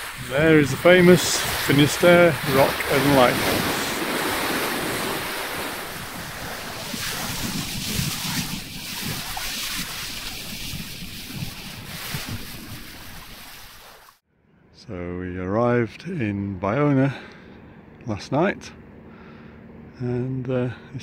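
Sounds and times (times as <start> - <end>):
wind buffeting microphone: 0.0 - 13.4
bow wave splashing along hull: 0.0 - 14.2.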